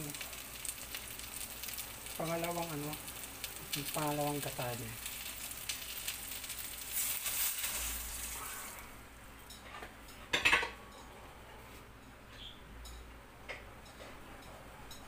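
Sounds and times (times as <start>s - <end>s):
liquid pouring into sizzling pot: 0.0s - 8.9s
dishware clattering: 9.5s - 10.8s.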